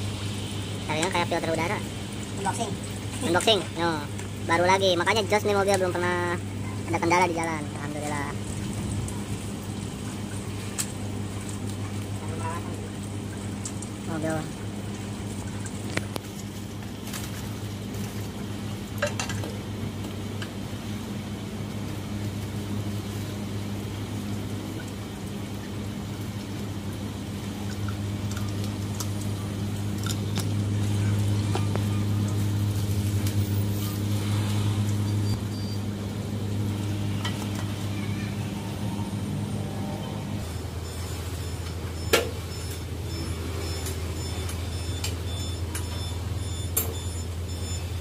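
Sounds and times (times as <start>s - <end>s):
low mechanical hum: 0.0s - 48.0s.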